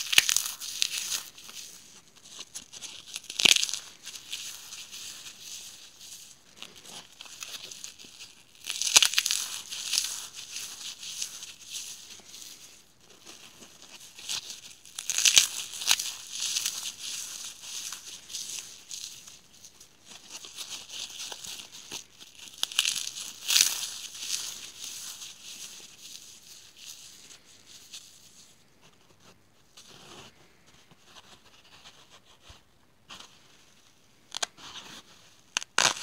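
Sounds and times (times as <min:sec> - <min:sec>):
floral foam crunching and crumbling: 0:00.0 - 0:36.0.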